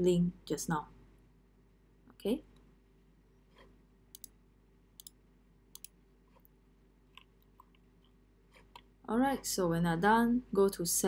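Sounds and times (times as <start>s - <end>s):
computer mouse clicks: 3.5s - 4.4s, 5.0s - 6.5s, 7.1s - 8.9s.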